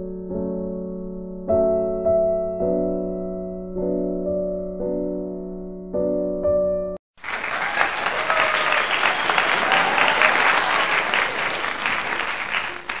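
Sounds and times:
piano music: 0.0 - 7.0
crowd applauding: 7.1 - 13.0.

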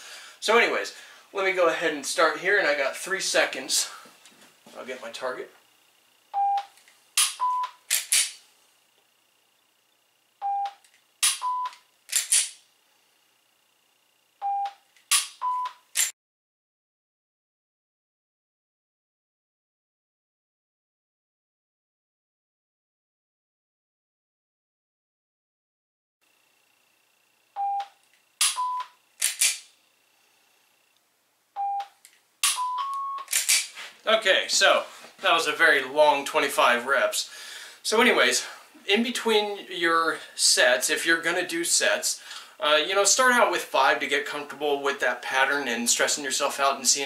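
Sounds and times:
shot timer beeps: 6.3 - 7.8, 10.4 - 11.9, 14.4 - 15.9, 27.6 - 29.0, 31.6 - 33.3
pistol clicking: 7.2 - 8.4, 12.1 - 12.6, 15.0 - 16.1, 29.2 - 29.7, 32.0 - 32.6, 33.2 - 33.7.

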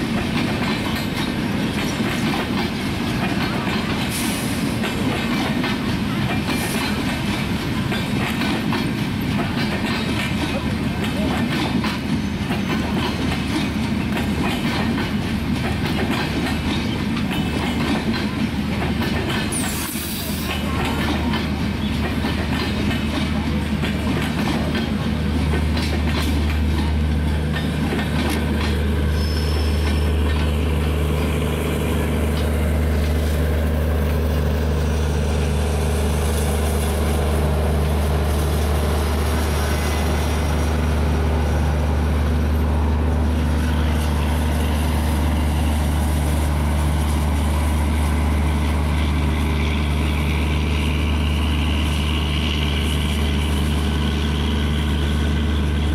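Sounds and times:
wheels clicking over rail joints: 0.0 - 39.0
train rolling past droning: 0.0 - 55.9.

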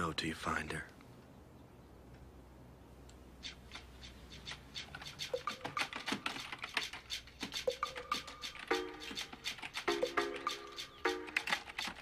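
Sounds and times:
typing on computer keyboard: 5.0 - 12.0.

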